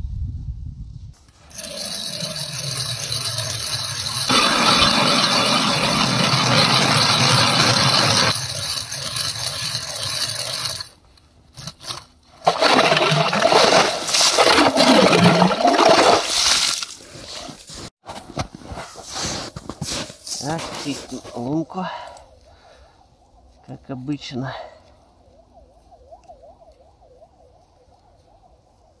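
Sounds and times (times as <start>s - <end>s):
ice auger grinding through ice: 1.3s - 11.0s, 11.6s - 17.6s.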